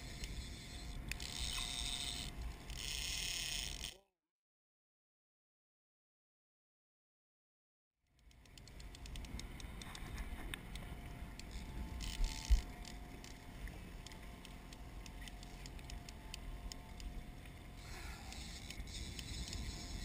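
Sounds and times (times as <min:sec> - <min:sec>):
boat motor humming: 0:00.0 - 0:04.0, 0:08.2 - 0:20.0.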